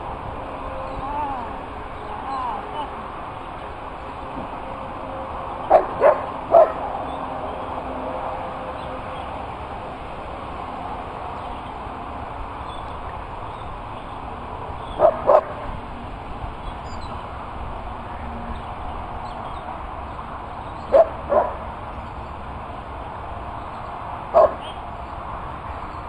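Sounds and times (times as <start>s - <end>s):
dog barking: 5.7s - 6.8s, 15.0s - 15.6s, 20.9s - 21.6s, 24.4s - 24.6s.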